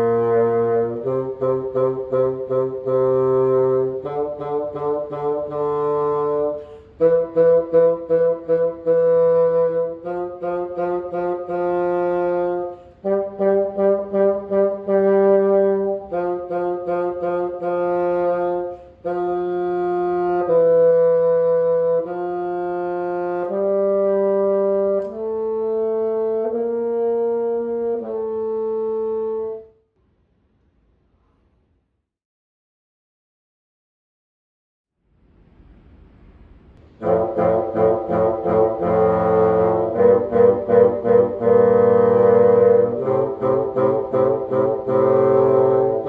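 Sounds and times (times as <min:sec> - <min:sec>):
bassoon playing a tune: 0:00.0 - 0:29.7, 0:36.8 - 0:46.0.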